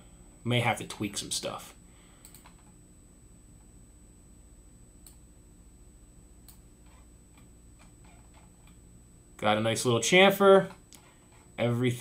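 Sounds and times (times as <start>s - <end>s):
faint hum: 0.0s - 12.0s
computer mouse clicks: 2.2s - 2.8s, 5.0s - 5.2s, 6.4s - 8.8s.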